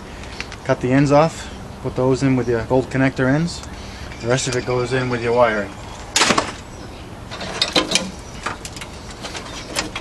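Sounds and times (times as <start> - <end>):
wires rustling: 3.0 - 10.0.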